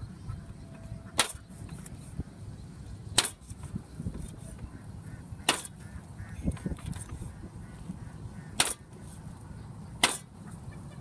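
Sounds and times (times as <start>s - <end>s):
cleaver chopping on wooden block: 5.5s - 5.7s, 8.6s - 8.8s, 10.0s - 10.3s.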